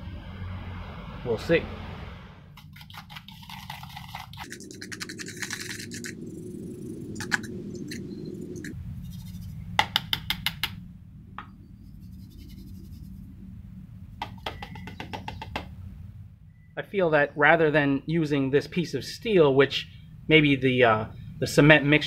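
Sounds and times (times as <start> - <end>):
steady low hum: 0.0 - 22.0
wet cement scraping in cup: 2.6 - 9.4.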